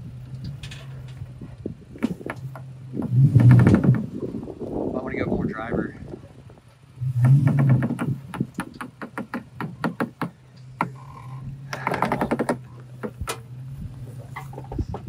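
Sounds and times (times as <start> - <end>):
low engine hum: 0.0 - 15.0
tyres and chassis knocking: 0.2 - 4.7, 6.6 - 13.6.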